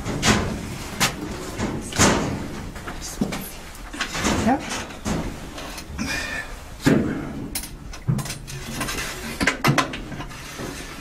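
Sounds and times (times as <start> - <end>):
metal knocks and clanks: 0.0 - 2.9, 3.9 - 5.4, 6.8 - 10.8.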